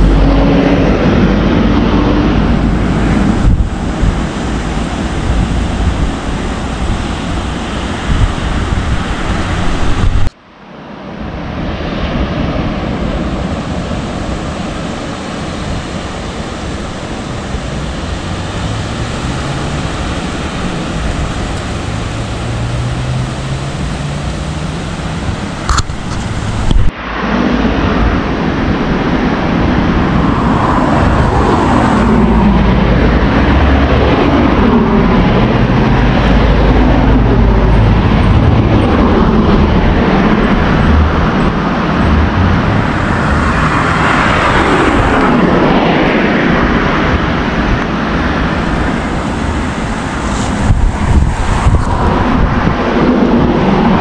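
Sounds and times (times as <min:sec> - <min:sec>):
wind buffeting microphone: 0:00.0 - 0:10.4, 0:11.1 - 0:54.0
surf: 0:00.0 - 0:54.0
wind: 0:00.0 - 0:54.0
vehicle engine passing: 0:17.0 - 0:25.6, 0:30.0 - 0:47.2.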